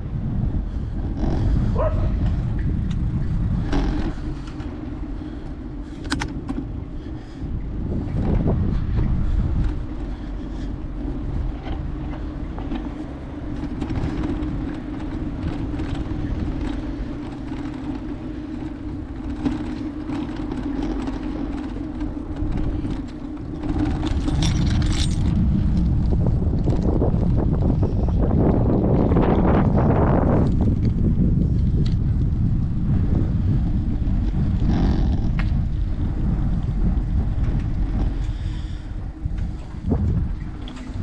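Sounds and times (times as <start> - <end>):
steady hum: 0.0 - 41.0
tyre and road noise: 0.0 - 41.0
wind rumbling over microphone: 0.0 - 41.0
small rattles: 0.8 - 8.6, 9.2 - 27.2.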